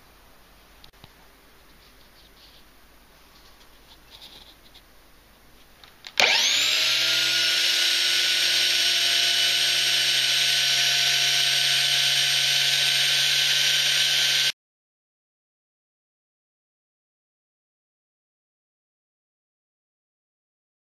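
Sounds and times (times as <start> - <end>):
belt sander whining: 6.2 - 14.5.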